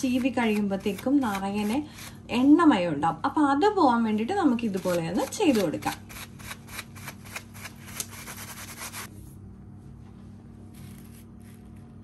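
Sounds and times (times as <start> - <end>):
tissue rubbing comb: 4.8 - 9.1, 10.7 - 11.9.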